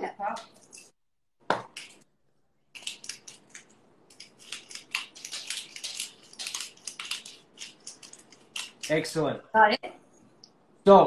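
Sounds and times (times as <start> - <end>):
pepper mill grinding: 2.8 - 9.1.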